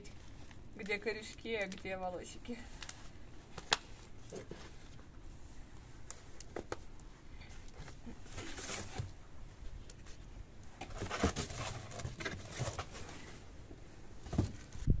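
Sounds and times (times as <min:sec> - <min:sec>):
cardboard rustling and scraping: 0:07.8 - 0:09.2, 0:10.0 - 0:15.0.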